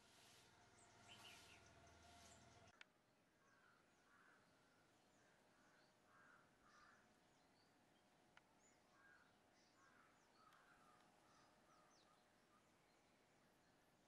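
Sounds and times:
small birds chirping: 0:00.0 - 0:02.8, 0:03.5 - 0:14.0
faint crows cawing: 0:03.4 - 0:07.2, 0:08.9 - 0:12.2.

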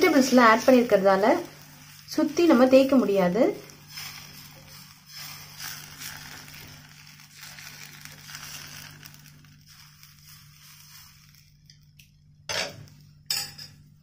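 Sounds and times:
ladle scraping a griddle: 0:03.6 - 0:11.4.

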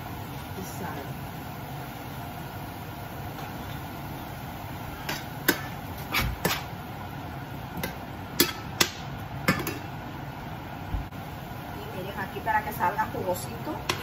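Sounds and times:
steady background hum: 0:00.0 - 0:14.0.

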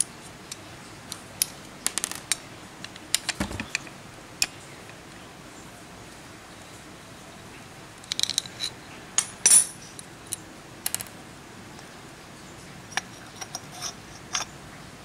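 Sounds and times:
metal parts clinking: 0:08.1 - 0:11.1.

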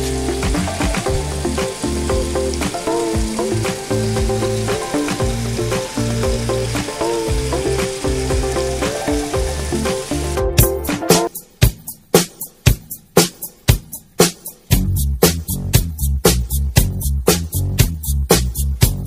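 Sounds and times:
water pouring into pond: 0:00.0 - 0:11.3
music with low notes: 0:00.0 - 0:19.0.

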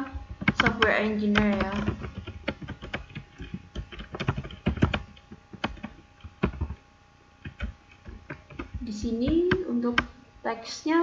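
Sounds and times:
keyboard typing: 0:00.2 - 0:06.8, 0:07.4 - 0:10.1.

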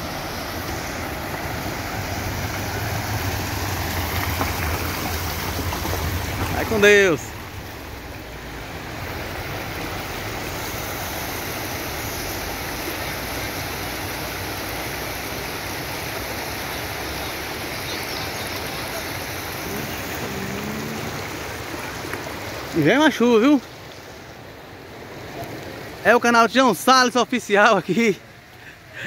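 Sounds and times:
floodwater rushing: 0:00.0 - 0:29.0.

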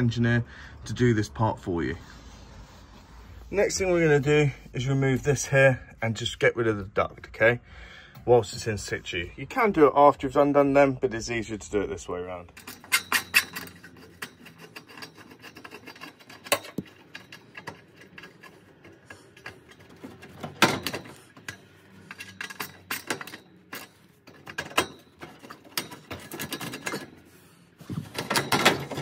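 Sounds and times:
metal duct scraping and rattling: 0:12.3 - 0:29.0.

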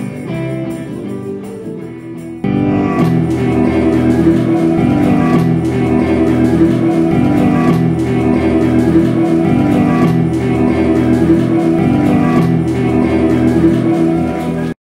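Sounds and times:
blues band playing: 0:00.0 - 0:14.8
guitar: 0:00.0 - 0:14.8.

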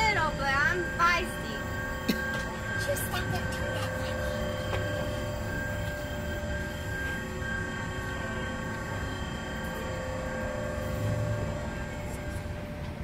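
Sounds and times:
machine hum with whining tones: 0:00.0 - 0:13.0.

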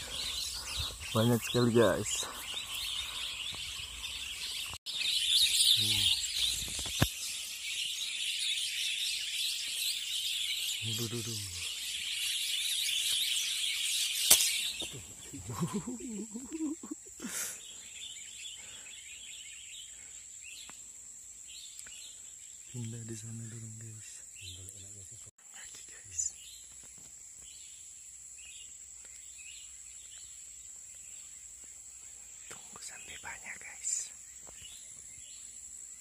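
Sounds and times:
birds chattering and chirping: 0:00.0 - 0:36.0
low voice-like sounds: 0:05.8 - 0:06.2.

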